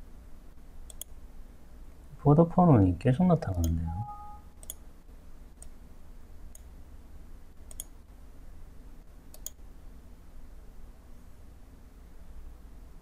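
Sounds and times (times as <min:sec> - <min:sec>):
faint low hum: 0:00.0 - 0:13.0
computer mouse clicking: 0:00.9 - 0:01.1, 0:04.6 - 0:04.8, 0:06.5 - 0:06.7, 0:07.7 - 0:08.0, 0:09.3 - 0:09.6.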